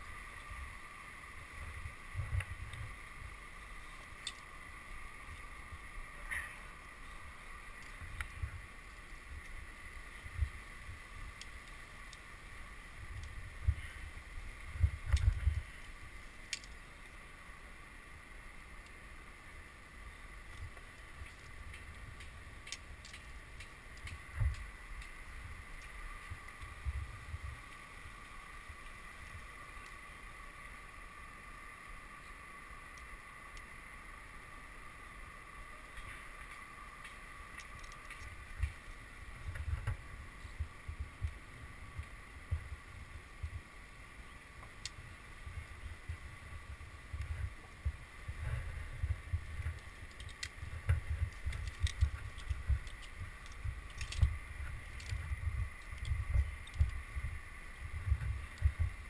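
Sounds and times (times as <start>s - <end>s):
faint high whine: 0.0s - 59.0s
wind buffeting microphone: 13.0s - 15.9s, 44.8s - 59.0s
carabiner clicking: 51.3s - 54.3s.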